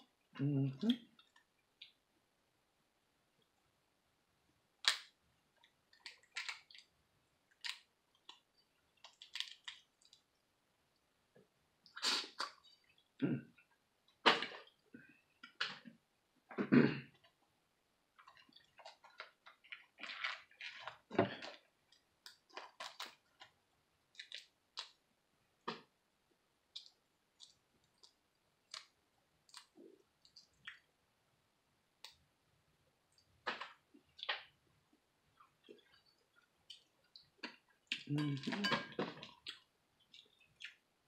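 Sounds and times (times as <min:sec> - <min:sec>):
wet chewing and smacking: 0:07.5 - 0:10.4, 0:18.2 - 0:25.0, 0:26.7 - 0:30.9, 0:35.3 - 0:40.9.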